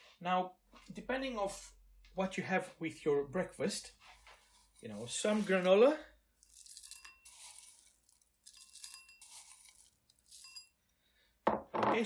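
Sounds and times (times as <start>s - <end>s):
granola rustling with clinks: 6.4s - 10.8s.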